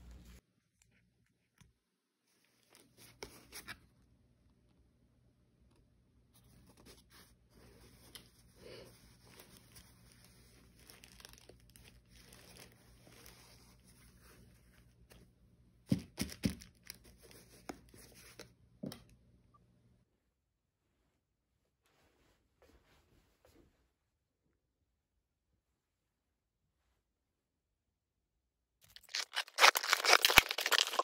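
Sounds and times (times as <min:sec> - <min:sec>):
packaging rustling and tearing: 0:09.2 - 0:13.8, 0:28.8 - 0:31.0.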